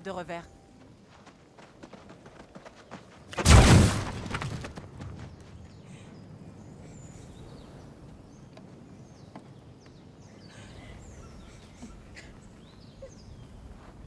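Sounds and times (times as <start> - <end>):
birds chirping: 4.8 - 14.0.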